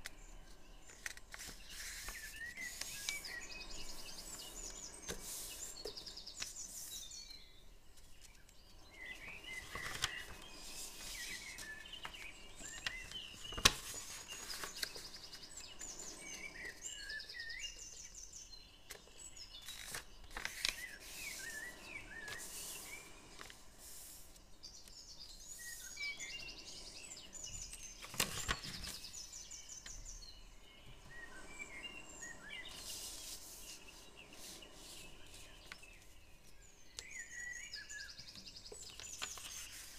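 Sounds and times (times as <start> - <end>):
paper handling: 0.0 - 7.0, 9.1 - 17.0, 18.9 - 24.1, 28.0 - 29.1, 38.3 - 39.9
birds chirping and trilling: 0.0 - 39.9.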